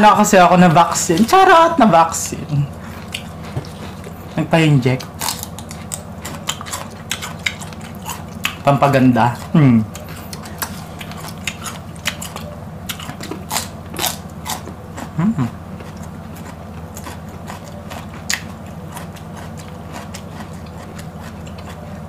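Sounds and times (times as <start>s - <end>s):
crunching raw vegetables: 2.7s - 22.0s
person humming: 9.4s - 10.2s, 15.1s - 15.6s.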